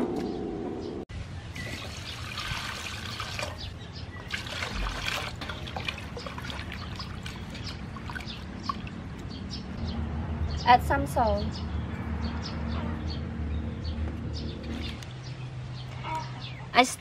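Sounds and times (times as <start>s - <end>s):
water splashing and sloshing: 1.5s - 9.7s
water pouring into basin: 1.6s - 9.0s.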